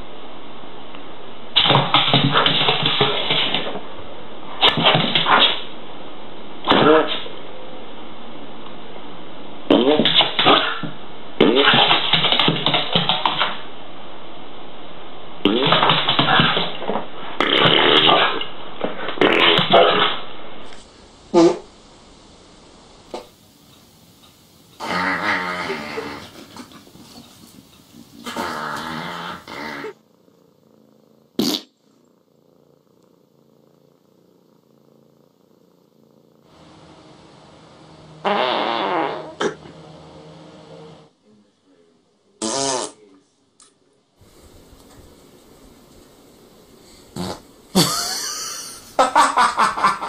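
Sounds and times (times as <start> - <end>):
cat purring: 1.5 - 42.1, 44.2 - 49.1
rasping buzzing fart noises: 9.7 - 13.6, 15.4 - 21.8, 24.8 - 26.8, 28.1 - 36.6, 38.2 - 39.8, 42.4 - 43.0, 47.1 - 48.4.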